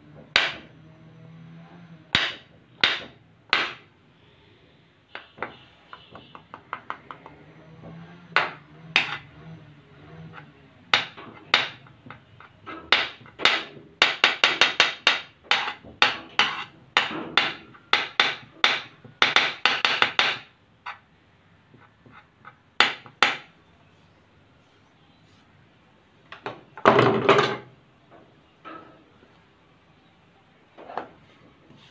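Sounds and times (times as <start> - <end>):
knife chopping on tabletop: 8.4 - 9.2, 11.0 - 20.5.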